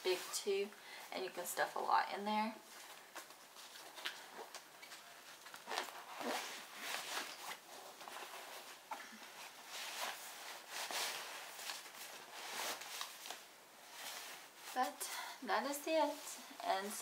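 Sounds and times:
papers and fabric rustling: 2.6s - 15.0s.

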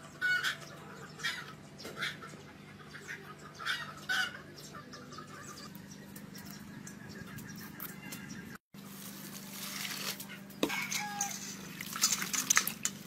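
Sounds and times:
chicken clucking: 0.1s - 8.4s.

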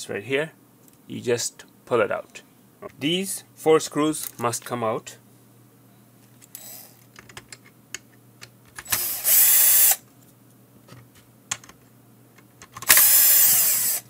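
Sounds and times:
electric screwdriver motor whine: 8.8s - 10.0s, 12.8s - 14.0s.

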